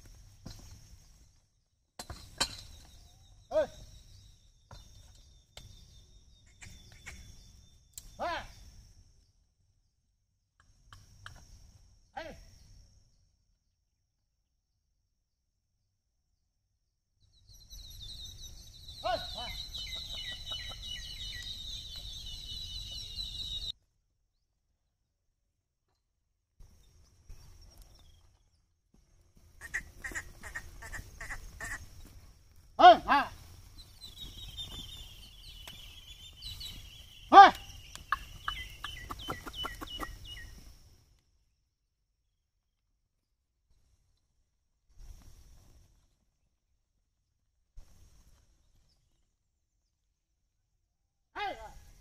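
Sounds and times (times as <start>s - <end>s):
lower falling bird calls: 0.4s - 8.7s, 17.3s - 23.7s, 26.8s - 40.8s
birds chirping: 2.4s - 9.4s, 17.2s - 23.7s, 26.8s - 40.8s
man shouting to bullocks: 3.5s - 3.8s, 8.2s - 8.6s, 12.2s - 12.4s, 19.0s - 19.6s, 32.8s - 33.4s, 37.3s - 37.7s, 51.3s - 51.8s
hooves clicking and knocking: 33.5s - 40.7s.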